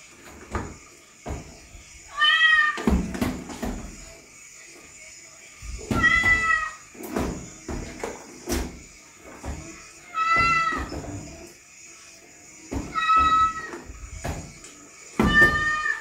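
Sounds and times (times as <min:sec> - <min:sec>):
cat meowing: 0:02.1 - 0:02.8, 0:06.0 - 0:06.8, 0:15.2 - 0:16.0.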